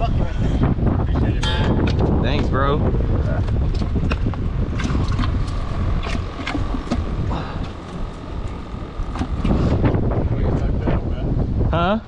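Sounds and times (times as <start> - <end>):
wind buffeting microphone: 0.0 - 12.0
fishing gear clicking and knocking: 3.6 - 9.6
faint steady hum: 3.6 - 11.7.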